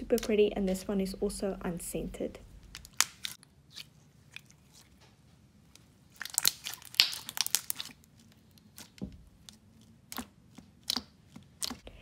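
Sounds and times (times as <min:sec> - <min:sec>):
slime crackling and popping: 0:02.6 - 0:04.8, 0:06.1 - 0:11.8.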